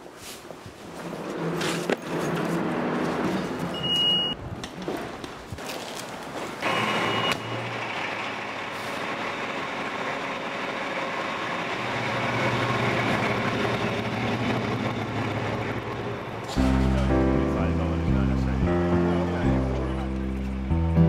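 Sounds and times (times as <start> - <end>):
fire engine running: 6.5 - 21.0.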